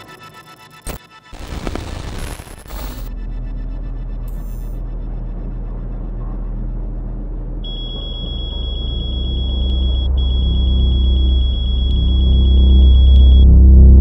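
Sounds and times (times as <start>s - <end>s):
deep rumble: 1.4s - 14.0s
rapid high electronic beeps: 7.7s - 13.4s.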